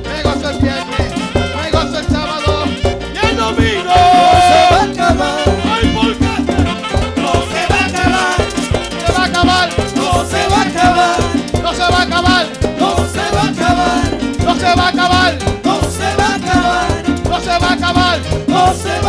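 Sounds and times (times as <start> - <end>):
live band playing latin dance music: 0.0 - 19.0
person singing: 3.2 - 19.0.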